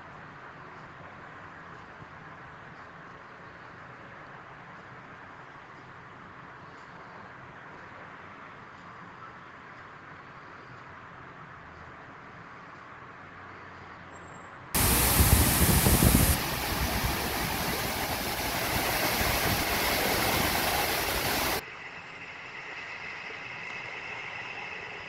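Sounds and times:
waterfall rushing: 14.8 - 21.6.

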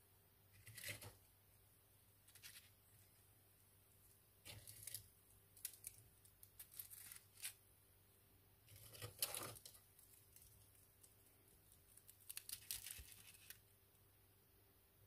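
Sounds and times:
crinkling and rustling handling noise: 2.0 - 7.6, 8.6 - 13.8.

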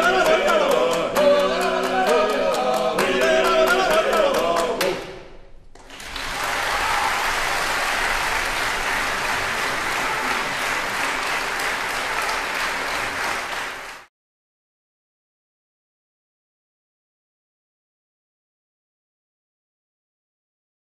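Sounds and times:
audience applauding: 5.8 - 14.1.

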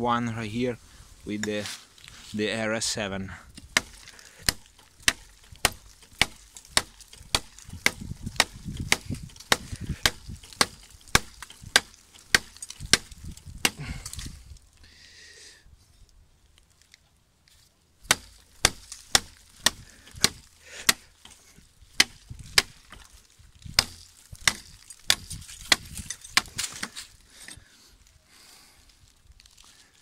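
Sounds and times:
knife chopping dry wood: 3.5 - 14.4, 18.0 - 27.1.

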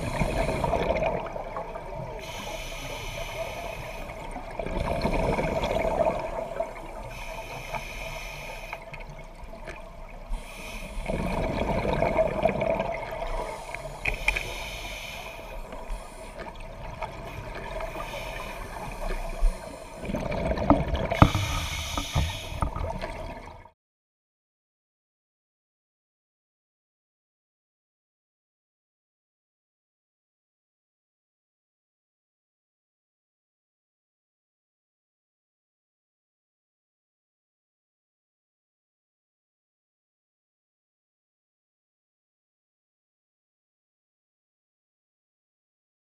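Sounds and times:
hissing regulator inhalations: 0.0 - 1.1, 2.1 - 4.4, 6.4 - 9.0, 10.3 - 11.4, 13.3 - 20.2, 21.2 - 23.0
exhaled bubbles rushing: 0.0 - 1.9, 4.4 - 6.8, 11.0 - 13.6, 19.9 - 23.6.

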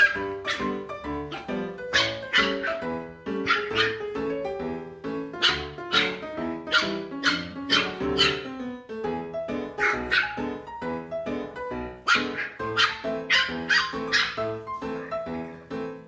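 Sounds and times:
puppies yapping: 0.0 - 4.2, 5.4 - 8.6, 9.7 - 10.6, 12.0 - 15.3
ragtime piano music: 0.0 - 16.0.

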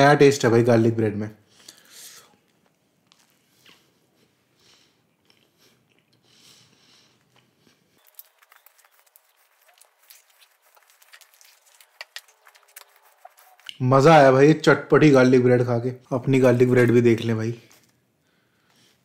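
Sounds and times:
soft chewing: 1.5 - 13.8
small quick clicks and crackles: 8.0 - 13.8.

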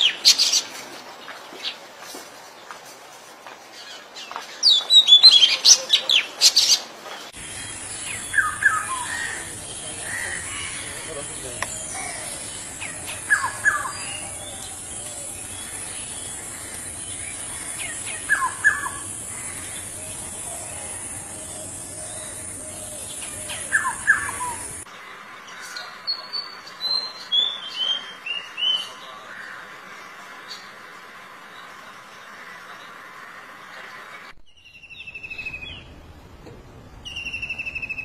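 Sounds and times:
bird singing high whistles: 37.1 - 38.0.

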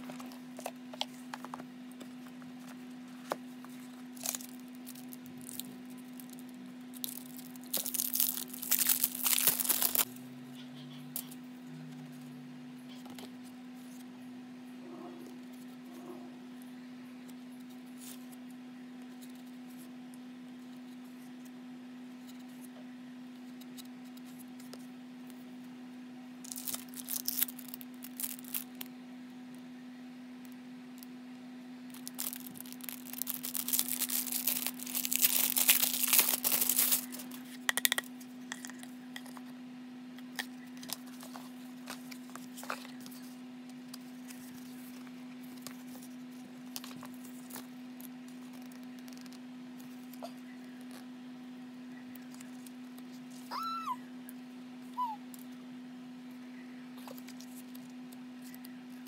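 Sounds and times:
steady low hum: 0.0 - 59.0
plastic wrapping crinkling and tearing: 3.8 - 10.1, 26.4 - 28.9, 31.9 - 37.6.

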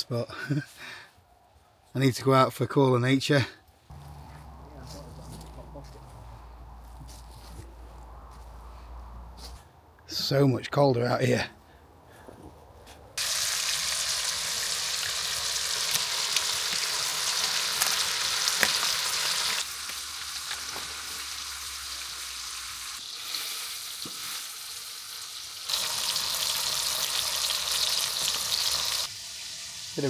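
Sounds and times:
steak sizzling in a frying pan: 13.2 - 30.0.

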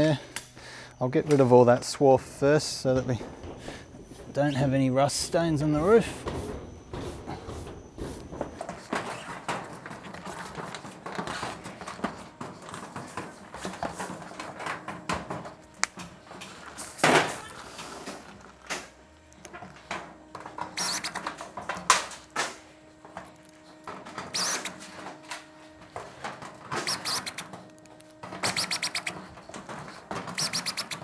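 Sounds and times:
cordless driver running: 20.7 - 21.5, 24.2 - 24.8, 26.7 - 31.0.

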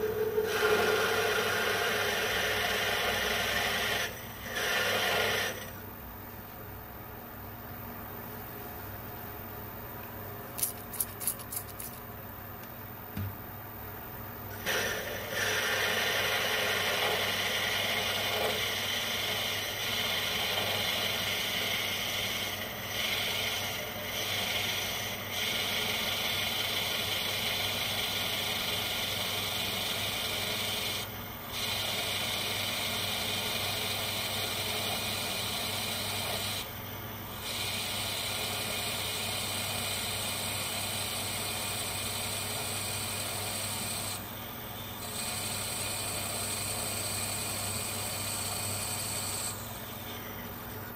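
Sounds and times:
drill cutting hiss: 0.0 - 5.7, 14.6 - 36.7, 37.3 - 44.2
lathe motor hum: 0.0 - 5.8, 14.7 - 36.6.

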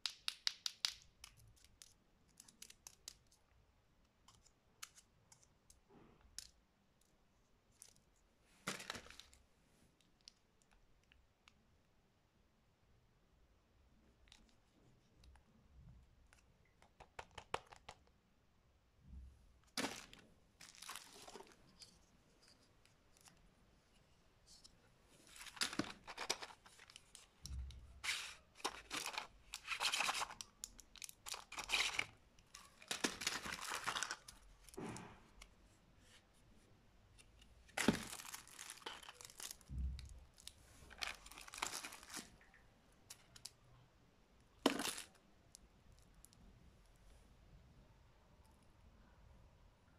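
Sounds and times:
candy packaging rustling: 0.2 - 3.5, 7.6 - 9.4, 19.6 - 23.7, 24.4 - 35.6, 37.2 - 43.6, 44.5 - 45.2.

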